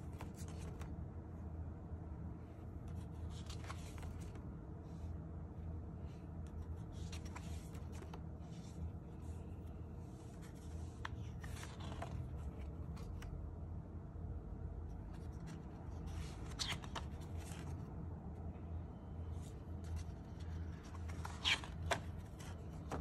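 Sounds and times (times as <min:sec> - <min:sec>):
paper pages turning: 0:00.0 - 0:00.9, 0:02.9 - 0:04.4, 0:06.5 - 0:13.3, 0:14.9 - 0:17.9, 0:19.4 - 0:23.0.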